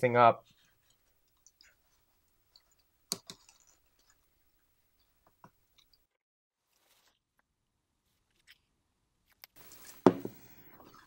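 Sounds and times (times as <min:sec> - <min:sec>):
faint clicks and taps: 0:00.4 - 0:04.3
aerosol can being handled: 0:09.6 - 0:11.0.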